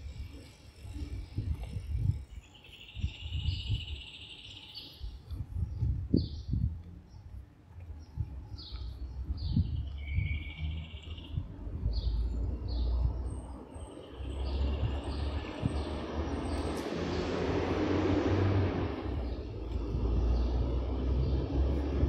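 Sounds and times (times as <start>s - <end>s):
small birds chirping: 0.0s - 17.5s, 18.9s - 22.0s
street ambience: 0.0s - 22.0s
passing vehicle: 10.5s - 22.0s.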